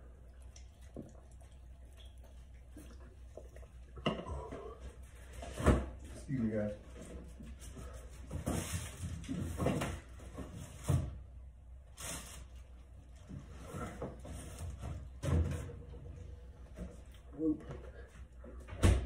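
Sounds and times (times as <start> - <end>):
rustling: 11.9 - 15.2
fridge door shutting: 18.7 - 19.0.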